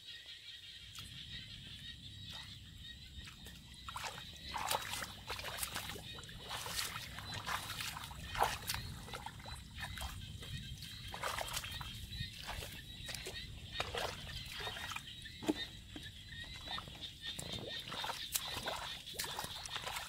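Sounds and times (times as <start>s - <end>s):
bare feet splashing in mud: 3.2s - 20.0s.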